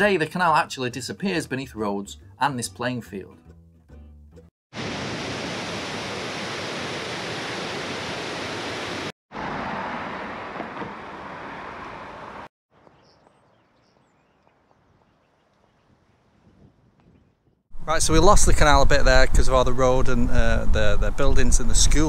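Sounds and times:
loud rushing noise beside road: 0:07.1 - 0:12.5.

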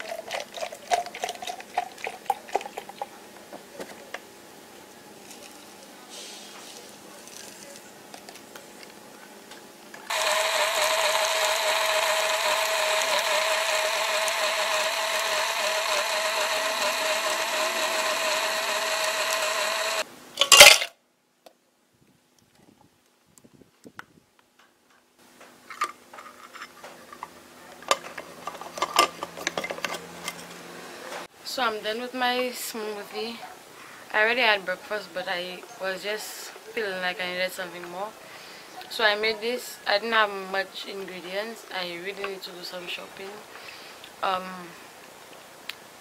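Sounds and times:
blender motor running: 0:10.1 - 0:20.1.

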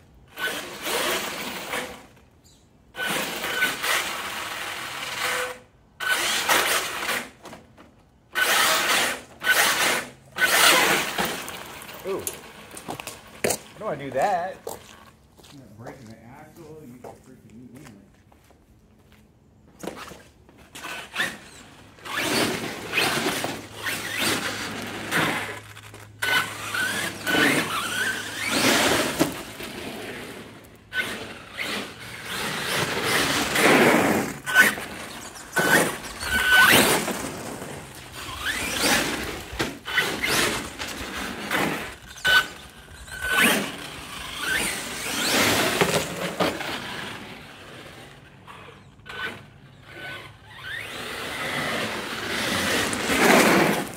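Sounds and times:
electric toy truck motor: 0:00.2 - 0:02.3, 0:02.9 - 0:07.7, 0:08.3 - 0:13.8, 0:20.6 - 0:53.9
high squeals: 0:20.8 - 0:29.2, 0:34.4 - 0:37.4, 0:48.4 - 0:51.6.

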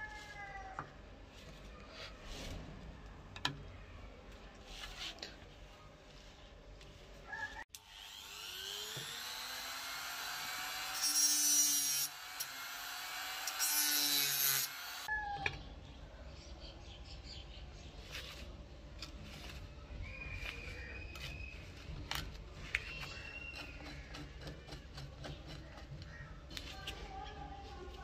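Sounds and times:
rotary tool whining: 0:07.8 - 0:15.1
screwdriver scraping a screw: 0:23.3 - 0:26.6.

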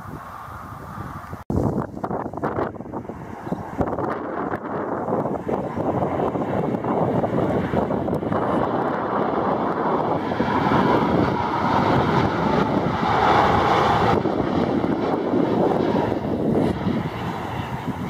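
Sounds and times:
jet engine rumble and whine: 0:00.0 - 0:18.0
wind buffeting microphone: 0:00.0 - 0:18.0.

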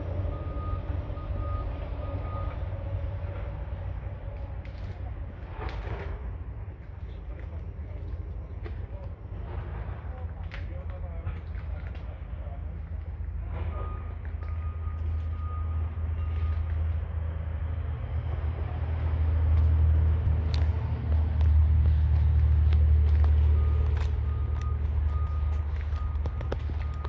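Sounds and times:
vehicle engine rumble: 0:00.0 - 0:27.0
faint high beep: 0:13.7 - 0:16.7, 0:23.5 - 0:27.0.

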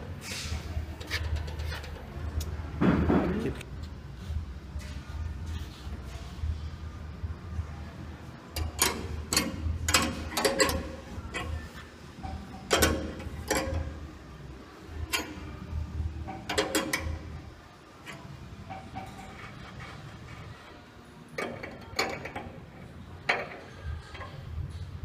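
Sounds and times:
spanner clicking and rattling: 0:01.0 - 0:02.5, 0:08.5 - 0:14.1, 0:16.3 - 0:17.4.

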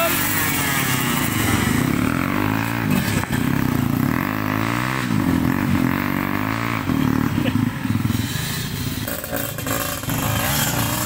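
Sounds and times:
dirt bike engine revving: 0:00.0 - 0:11.0
wheel spinning in loose dirt: 0:08.0 - 0:11.0.

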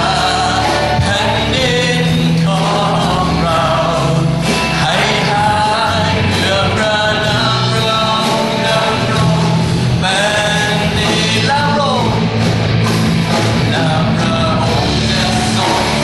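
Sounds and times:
person singing lead vocals: 0:00.0 - 0:12.6, 0:13.2 - 0:16.0
rock band playing: 0:00.0 - 0:16.0.

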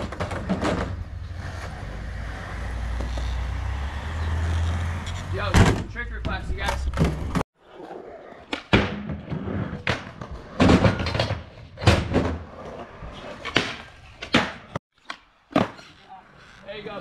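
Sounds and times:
skateboard clacks and slams: 0:00.0 - 0:01.1, 0:08.5 - 0:14.8
skateboard wheels rolling on concrete: 0:00.0 - 0:17.0.

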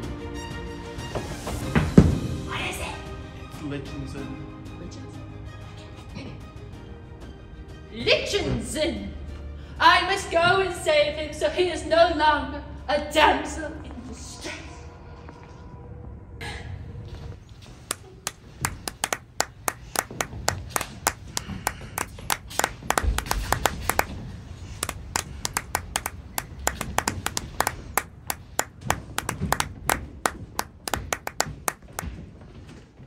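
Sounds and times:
small audience clapping: 0:17.7 - 0:32.2.

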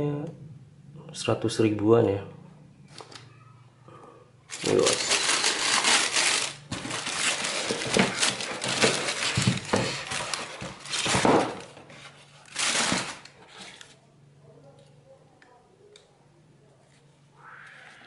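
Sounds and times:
tissue paper rustling and crinkling: 0:04.5 - 0:13.8.

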